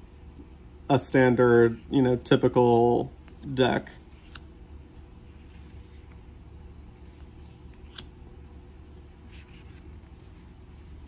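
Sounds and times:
low steady hum: 0:00.0 - 0:11.0
cards rustling and sliding: 0:02.6 - 0:11.0.

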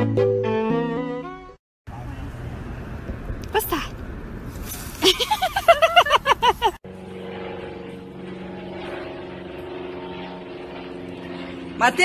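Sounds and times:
steady low hum: 0:05.2 - 0:12.0.

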